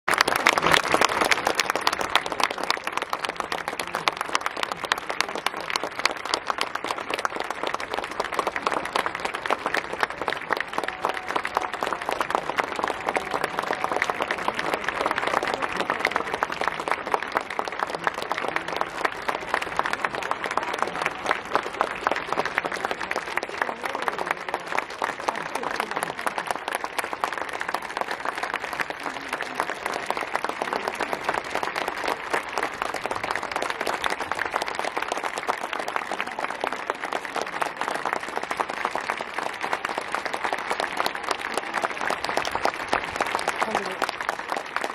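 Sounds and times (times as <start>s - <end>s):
stadium crowd applauding: 0.0s - 44.9s.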